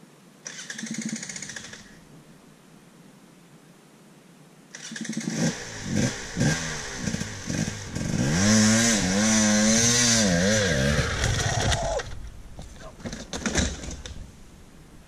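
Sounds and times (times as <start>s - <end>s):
motorcycle engine revving: 4.8s - 12.1s.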